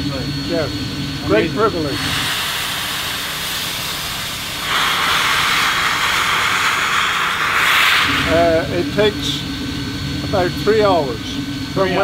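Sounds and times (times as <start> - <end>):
steam locomotive venting steam: 1.8 - 9.4.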